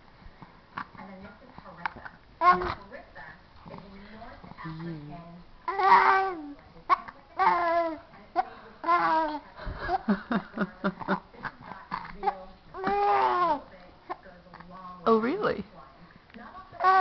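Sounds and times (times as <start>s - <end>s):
baby cooing and babbling: 5.7s - 6.6s, 7.4s - 8.0s, 12.2s - 13.6s, 16.8s - 17.0s.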